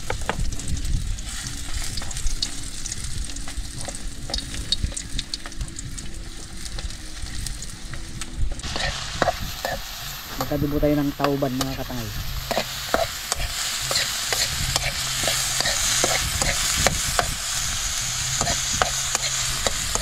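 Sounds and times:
fish sizzling in hot oil: 0.0s - 20.0s
metal spoon scraping a wok: 8.6s - 10.5s, 12.2s - 20.0s.

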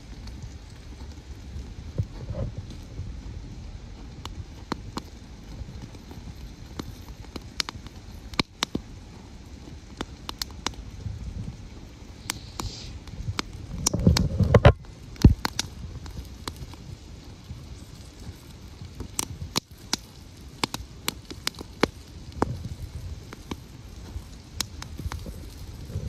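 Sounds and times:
low rumble: 0.0s - 10.0s
campfire crackling and popping: 0.0s - 26.0s.

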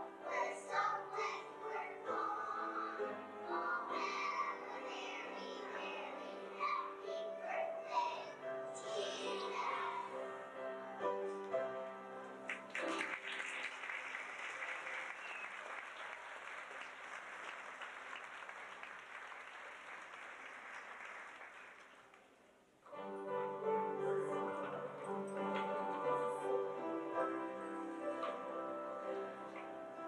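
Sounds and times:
song with musical accompaniment: 0.0s - 12.8s, 22.9s - 30.0s
audience applauding: 12.5s - 22.4s.

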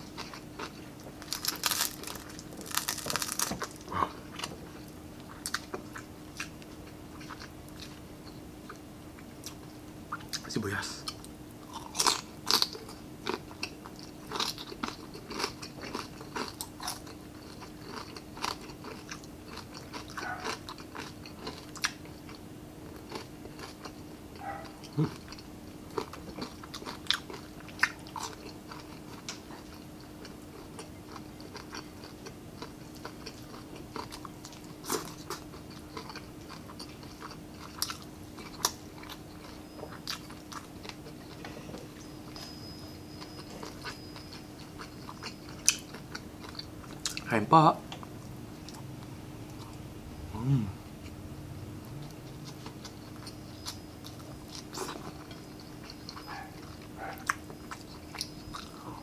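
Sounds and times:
crunching and chewing fried food: 0.0s - 59.0s.

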